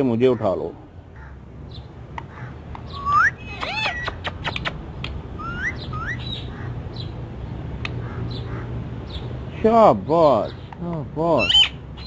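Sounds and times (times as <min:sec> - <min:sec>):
parakeet chirps and clicks: 0:02.1 - 0:06.5
parakeet whistling: 0:02.9 - 0:04.2, 0:05.4 - 0:06.5.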